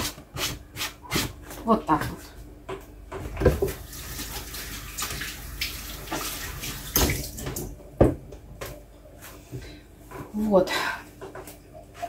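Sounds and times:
tap water running: 3.2 - 8.2.

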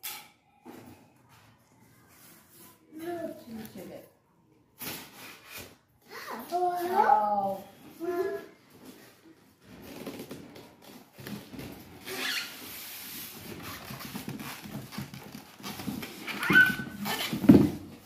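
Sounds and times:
packaging rustling and scraping: 8.7 - 18.0.

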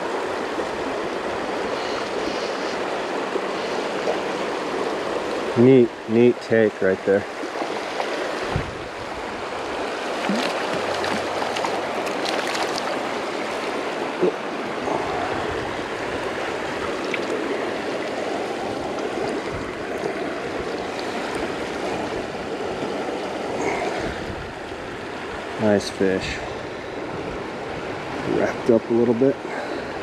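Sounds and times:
creek running over riffle: 0.0 - 24.2
water splashes and knocks: 7.3 - 8.8, 10.0 - 13.8, 16.8 - 23.0.

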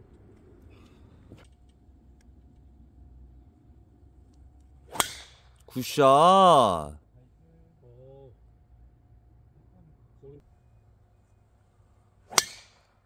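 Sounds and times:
faint low hum: 0.0 - 13.0
golf club striking ball: 4.9 - 5.6, 12.3 - 12.9.

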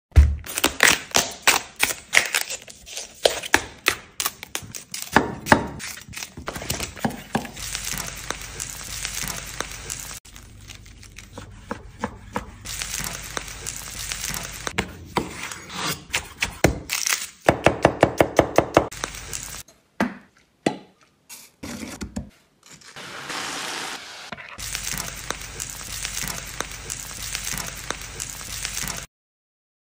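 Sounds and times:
food sizzling: 6.4 - 11.2, 12.5 - 14.8, 18.9 - 19.6, 23.0 - 29.1.

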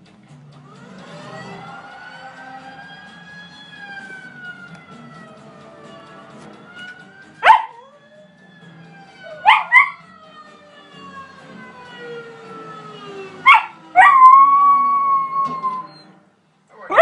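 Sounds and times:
film soundtrack with gliding tones: 0.0 - 16.2
dog howling in yelping cries: 7.4 - 8.0, 9.3 - 10.0, 13.4 - 16.1, 16.7 - 17.0.

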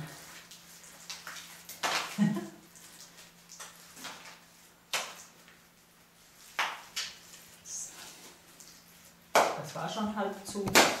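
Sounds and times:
clay plaster slapped onto wall: 10.5 - 11.0.

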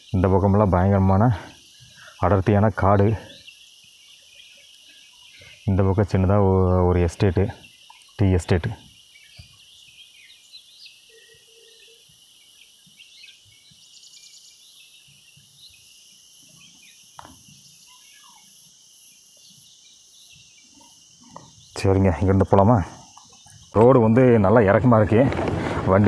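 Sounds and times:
high-pitched insect drone: 0.0 - 24.7
bird chirps: 0.0 - 25.0.

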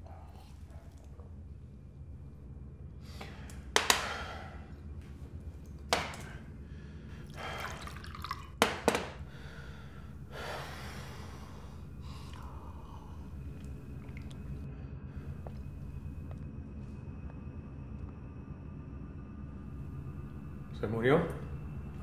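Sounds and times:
liquor pouring over ice: 7.3 - 8.7.

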